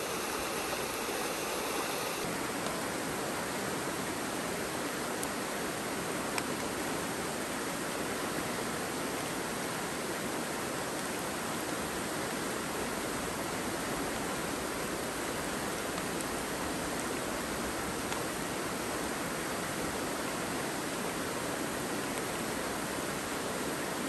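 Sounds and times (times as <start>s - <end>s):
river water rushing: 0.0s - 12.8s.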